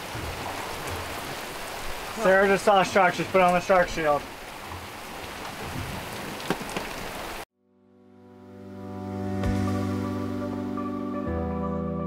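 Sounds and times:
rain on a boat's hard top: 0:00.0 - 0:07.5
soft music with held tones: 0:07.6 - 0:12.0.

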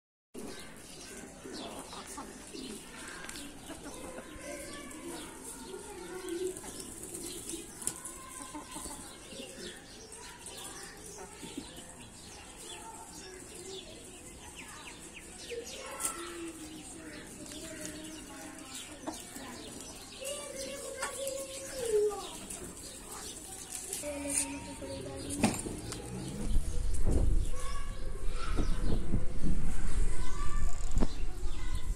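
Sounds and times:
chickens clucking: 0:00.4 - 0:29.0
pigeons cooing: 0:06.1 - 0:09.8.

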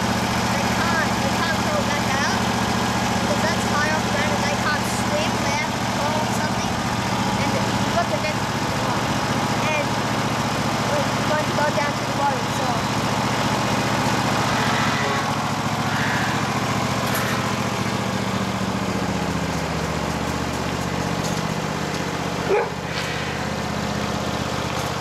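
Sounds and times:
ride-on mower engine running: 0:00.0 - 0:25.0
dog barking: 0:22.5 - 0:22.8.

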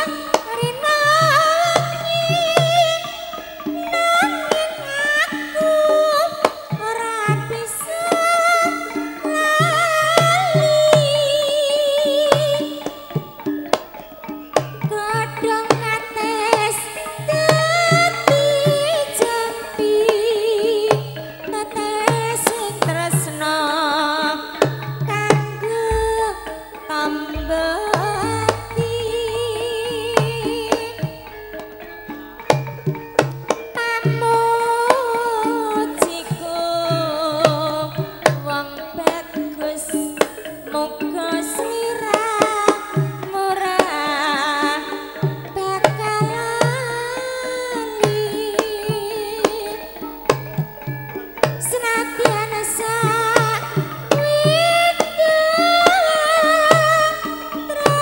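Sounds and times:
woman singing long wavering notes: 0:00.0 - 0:13.3, 0:14.8 - 0:32.1, 0:33.8 - 0:50.6, 0:51.4 - 0:58.0
hand-drum strokes: 0:00.0 - 0:58.0
steady low tone: 0:27.3 - 0:32.3
ringing bronze gong-chime notes: 0:27.3 - 0:33.2.

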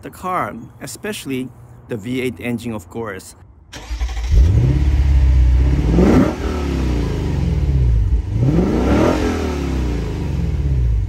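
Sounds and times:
car engine revving: 0:03.8 - 0:11.0.

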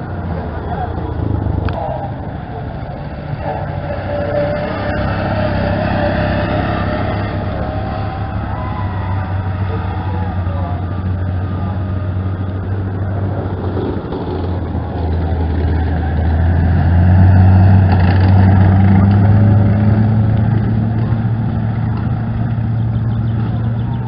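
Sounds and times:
half-track engine running: 0:00.0 - 0:24.0.

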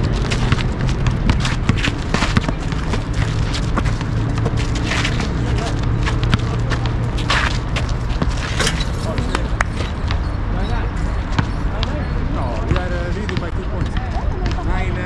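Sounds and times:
sneakers scuffing: 0:00.0 - 0:10.2
steady low rumble: 0:00.0 - 0:10.2
basketball bouncing on asphalt: 0:00.0 - 0:14.9.

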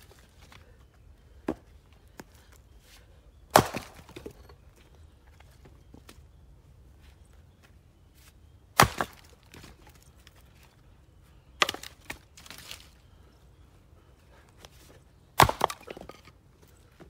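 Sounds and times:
axe splitting wood: 0:03.5 - 0:04.5, 0:08.7 - 0:09.7, 0:11.6 - 0:12.6, 0:15.4 - 0:16.3.

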